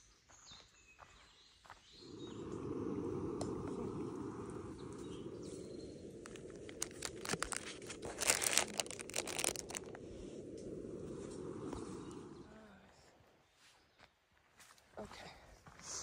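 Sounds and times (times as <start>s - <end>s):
plastic wrappers crinkling: 6.2s - 10.0s.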